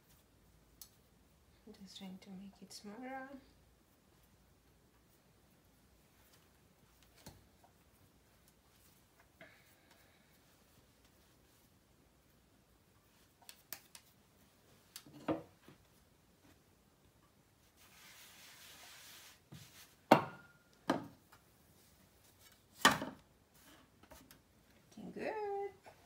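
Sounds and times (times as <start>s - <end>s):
soft brushing rub: 2.4s - 12.4s, 17.6s - 20.1s.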